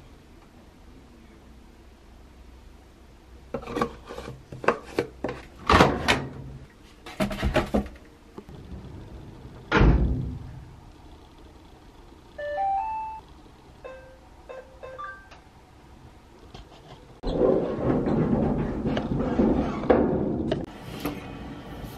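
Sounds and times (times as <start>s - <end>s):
heavy thump: 9.7s - 10.7s.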